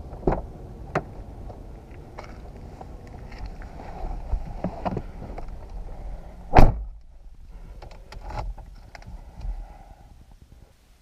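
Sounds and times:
car door slamming: 6.5 - 6.9.

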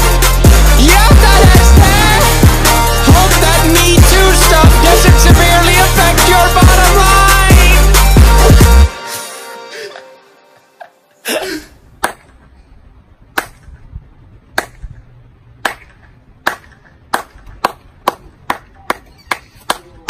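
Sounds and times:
person clapping hands: 15.6 - 20.0.

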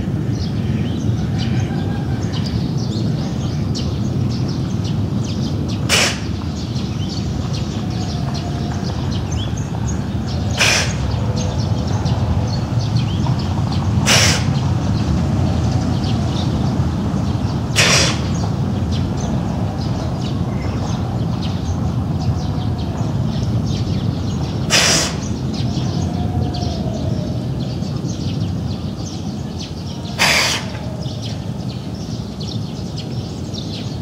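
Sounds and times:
birds chirping: 0.0 - 34.0
low outdoor rumble: 0.0 - 34.0
giraffe sneezing: 5.8 - 6.4, 10.5 - 11.1, 14.0 - 14.6, 17.8 - 18.4, 24.7 - 25.3, 30.2 - 30.9.

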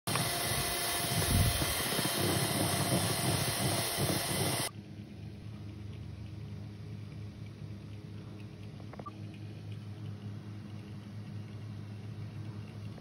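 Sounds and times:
electric hand mixer whipping batter: 0.1 - 4.7.

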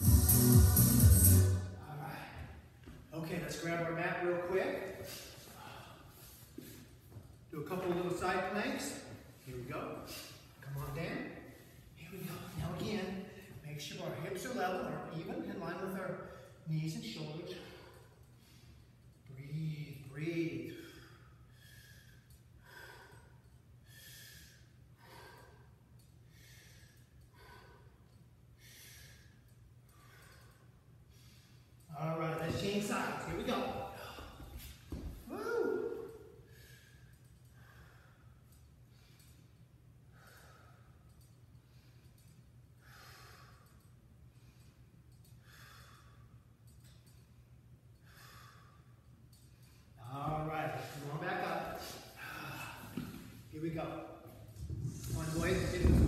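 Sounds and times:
low room hum: 0.0 - 56.0
man breathing softly: 5.0 - 7.2, 20.7 - 31.9, 36.4 - 47.4, 48.0 - 50.0, 50.8 - 53.5.

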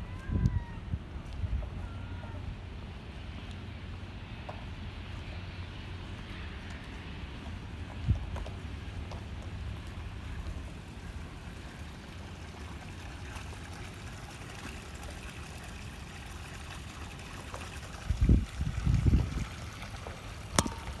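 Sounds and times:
wind buffeting the microphone: 0.0 - 3.0, 6.2 - 10.8, 17.9 - 21.0.

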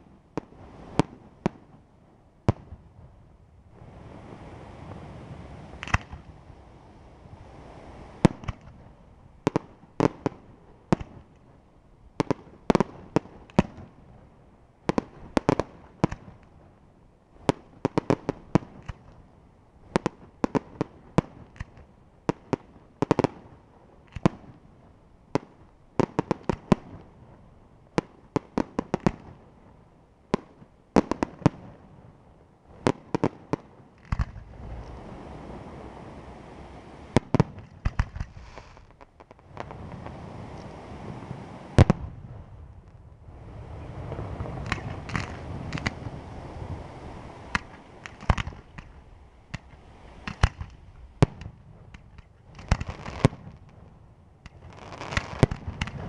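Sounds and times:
firework shells bursting: 5.8 - 6.2, 44.1 - 46.1, 47.5 - 53.3, 54.4 - 56.0
steady rushing noise: 34.3 - 38.6, 39.4 - 51.2.

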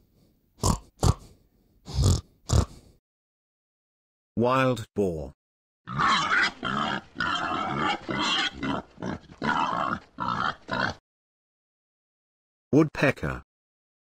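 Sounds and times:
wild boar grunting: 5.9 - 11.0.

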